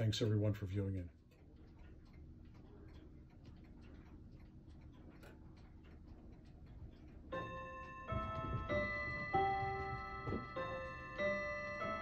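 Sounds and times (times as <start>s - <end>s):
clock ticking faintly: 0.0s - 12.0s
ringing bell-like tones: 7.3s - 12.0s.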